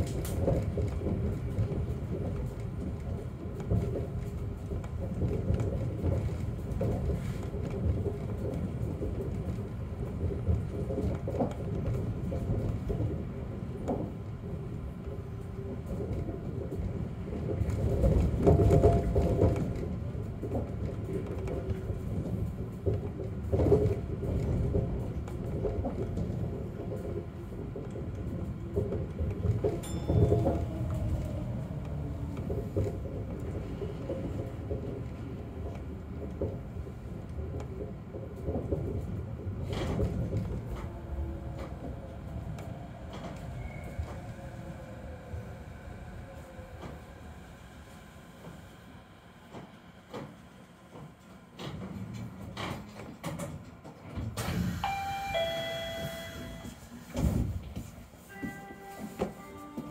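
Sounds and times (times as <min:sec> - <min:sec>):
train low rumble: 0:00.0 - 0:59.9
electronic two-note chime: 0:54.8 - 0:56.7.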